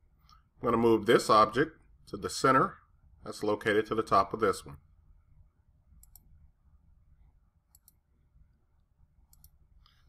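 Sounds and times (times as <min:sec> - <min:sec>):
computer mouse clicks: 0:06.0 - 0:06.3, 0:07.7 - 0:08.0, 0:09.3 - 0:10.0.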